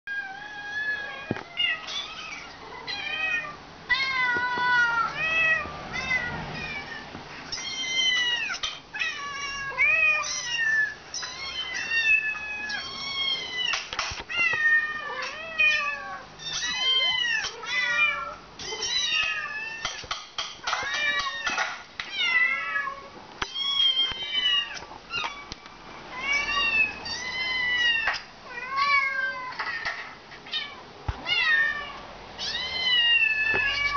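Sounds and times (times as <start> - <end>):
adult cat meowing: 0.1 - 20.0.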